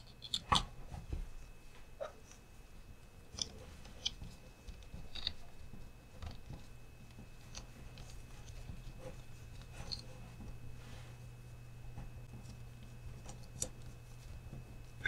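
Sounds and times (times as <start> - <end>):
plastic parts clicking and tapping: 0.0 - 0.7
faint steady hum: 0.0 - 15.0.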